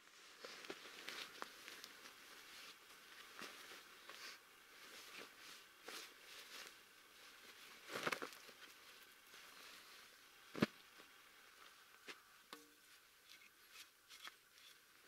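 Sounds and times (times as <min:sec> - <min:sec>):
padded jacket rustling: 0:00.5 - 0:10.7.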